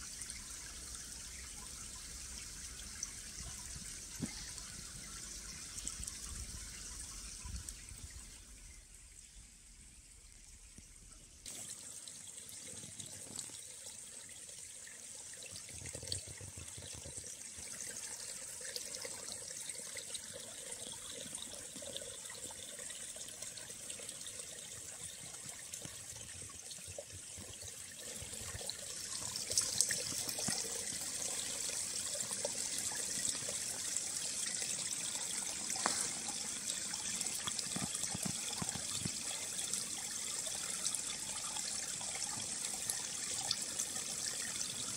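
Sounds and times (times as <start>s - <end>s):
stream trickling: 0.0s - 44.9s.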